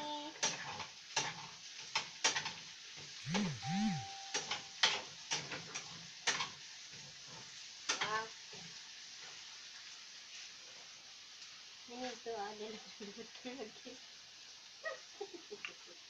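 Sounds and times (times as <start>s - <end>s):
meat and potatoes sizzling in pan: 0.0s - 3.3s, 4.1s - 16.0s
short low rising and falling sound: 3.3s - 4.3s.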